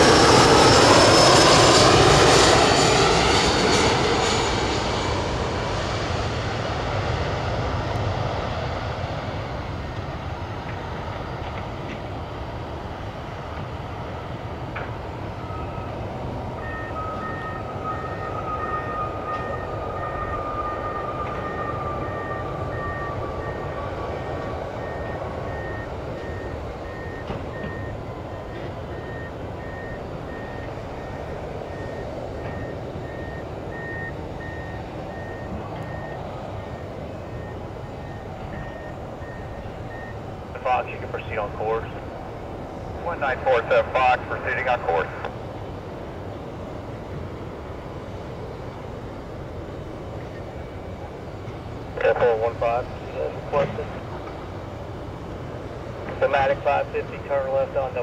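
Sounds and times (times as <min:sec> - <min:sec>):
jet engine whine: 0:00.0 - 0:58.0
jet engines roaring: 0:00.0 - 0:58.0
high beeping: 0:16.6 - 0:40.2.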